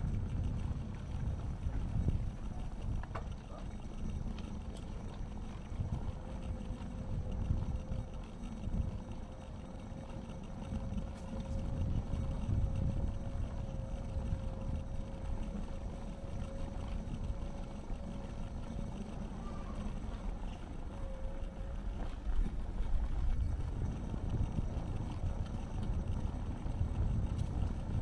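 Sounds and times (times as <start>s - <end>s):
steady motor whine: 0.0s - 28.0s.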